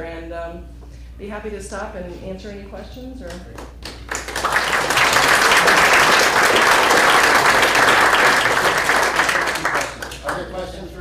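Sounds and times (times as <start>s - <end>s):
audience applauding: 3.8s - 10.6s.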